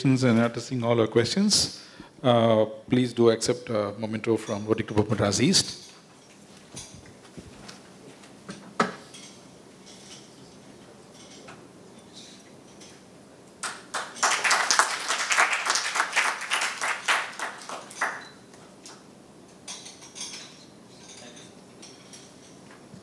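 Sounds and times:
audience applauding: 13.6 - 18.4.

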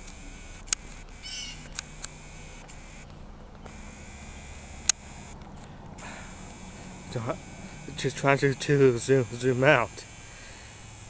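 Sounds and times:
camera handling clicks: 0.0 - 3.8
high wavering animal call: 1.2 - 1.9.

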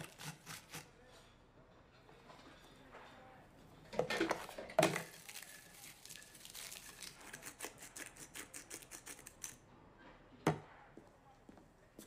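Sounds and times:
potato chips crushed by hand: 5.0 - 9.6.

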